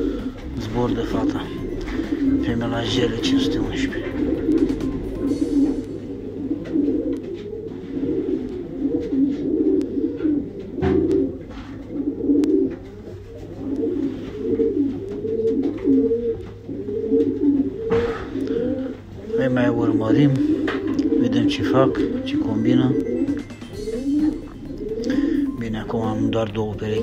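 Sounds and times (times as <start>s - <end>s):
pigeons cooing: 0.0s - 27.0s.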